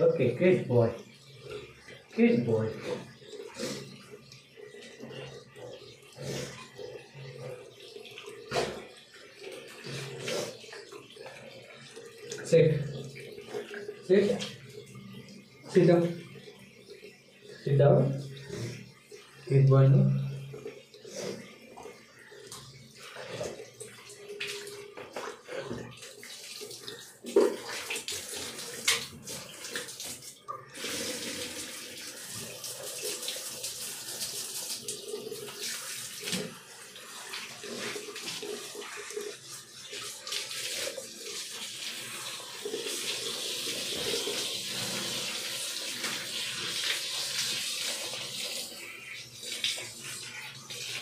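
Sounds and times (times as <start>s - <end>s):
shower spraying water: 23.0s - 51.0s.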